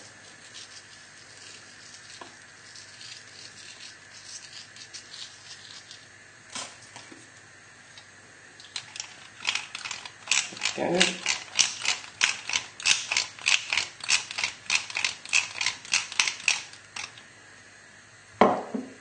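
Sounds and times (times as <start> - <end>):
pepper mill grinding: 0.0 - 7.2, 8.6 - 17.2.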